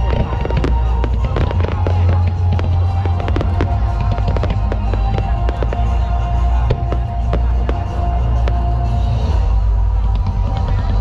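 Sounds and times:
fireworks bangs and crackles: 0.0 - 11.0
music playing: 0.0 - 11.0.

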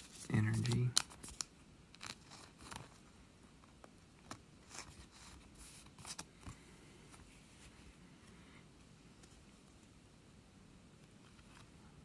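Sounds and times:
cards and plastic sleeve rustling: 0.0 - 7.3.

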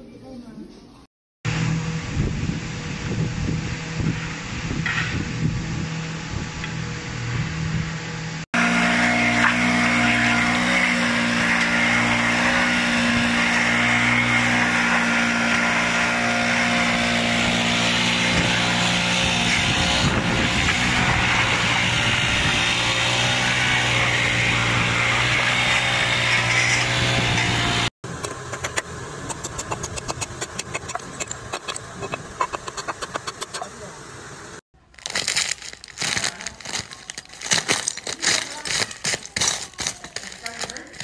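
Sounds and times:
leaf blower running: 1.5 - 41.0
stick tapping and scraping stone: 28.2 - 33.7, 36.7 - 41.0
ice sliding across asphalt: 34.9 - 41.0.

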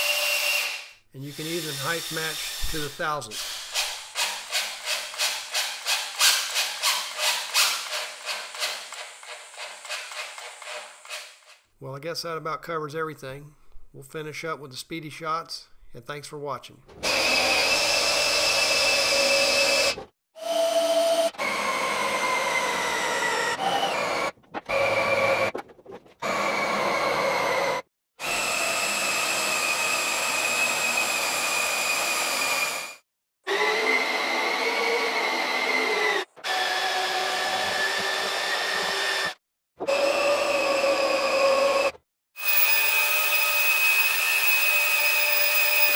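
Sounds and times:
power tool high whine: 39.9 - 45.9.

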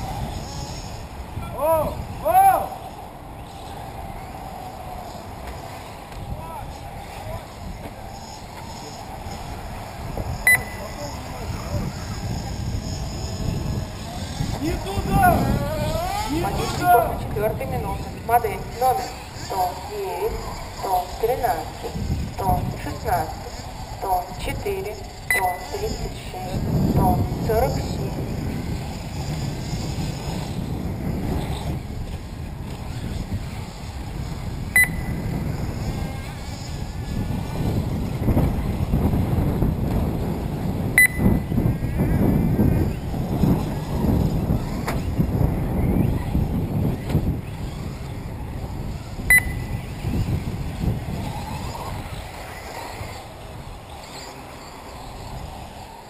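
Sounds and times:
radio-controlled car motor whines: 0.0 - 56.0
wind buffeting microphone: 0.0 - 56.0
sharp electronic beep: 10.4 - 11.1, 25.3 - 25.7, 34.8 - 35.2, 41.0 - 41.4, 49.3 - 49.8.

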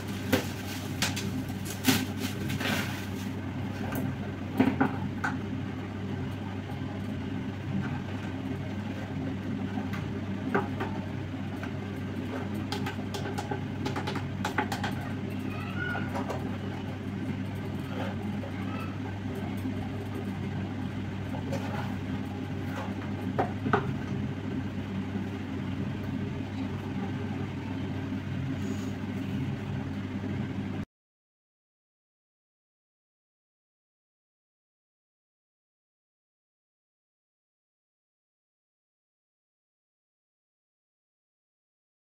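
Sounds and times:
bubble wrap crinkling: 0.0 - 3.4
steady low hum: 0.0 - 30.9.

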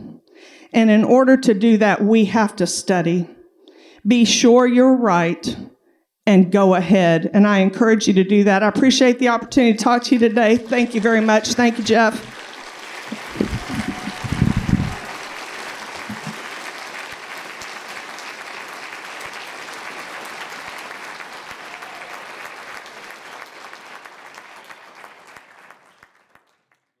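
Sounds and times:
audience applauding: 10.4 - 26.9.

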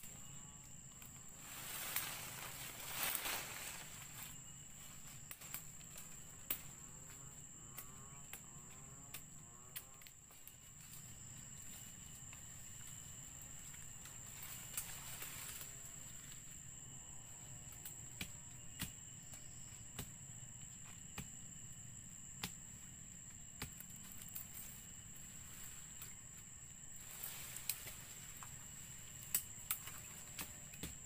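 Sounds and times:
insects high-pitched drone: 0.0 - 31.0
twigs and leaves snapping underfoot: 0.9 - 4.4, 5.1 - 6.8, 27.0 - 31.0.

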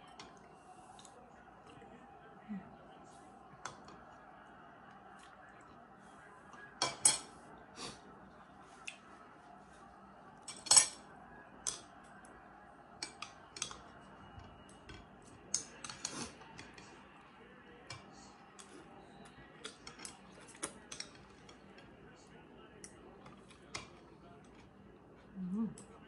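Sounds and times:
spoon and chopsticks clinking bowl: 6.8 - 7.3, 10.4 - 11.0.

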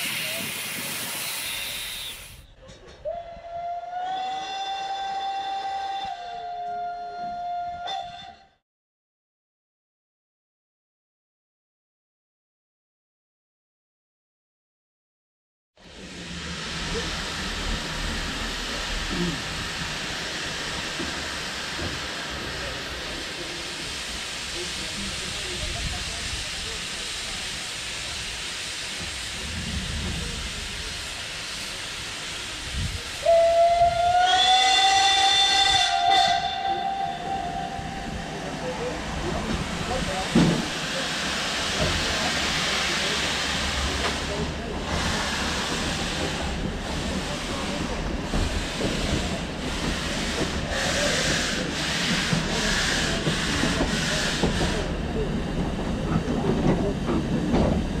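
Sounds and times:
steam hissing: 0.0 - 2.5, 15.8 - 58.0
rumble of running train: 0.0 - 8.5, 15.8 - 58.0
steam whistle long note: 3.1 - 8.6, 33.2 - 38.3.

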